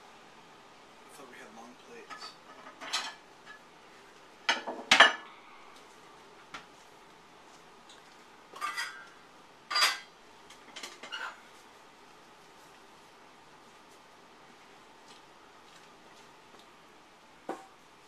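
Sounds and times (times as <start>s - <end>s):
pots and dishes clattering: 2.0s - 3.6s, 4.5s - 5.3s, 8.6s - 9.1s, 9.7s - 11.4s.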